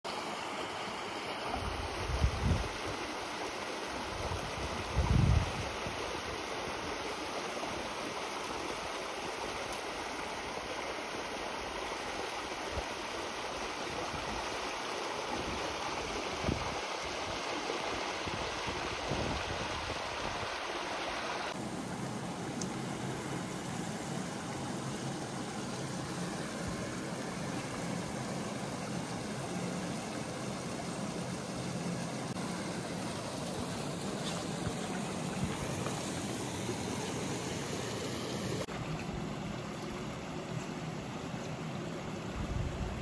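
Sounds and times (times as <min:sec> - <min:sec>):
stream rushing over rocks: 0:00.1 - 0:43.0.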